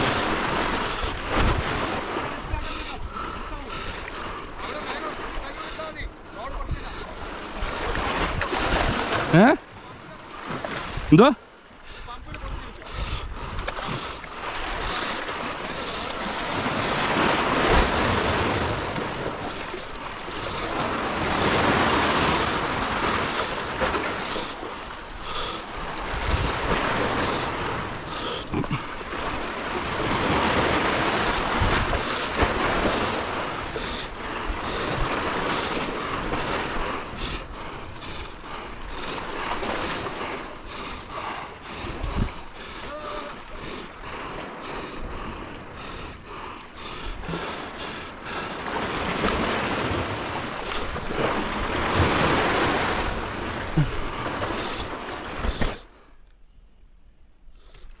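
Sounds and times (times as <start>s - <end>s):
sea waves washing against breakwater: 0.0s - 56.0s
wind buffeting microphone: 25.9s - 27.8s, 41.7s - 42.8s.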